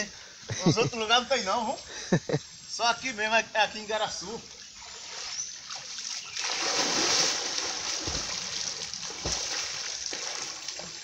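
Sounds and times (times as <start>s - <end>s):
water lapping: 4.6s - 11.0s
person splashing into water: 5.1s - 10.9s.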